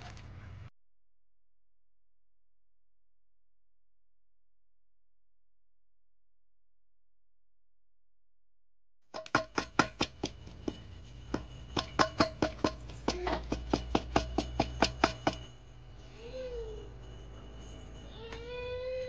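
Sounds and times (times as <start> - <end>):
knocks ringing a steel bowl: 9.2 - 15.7.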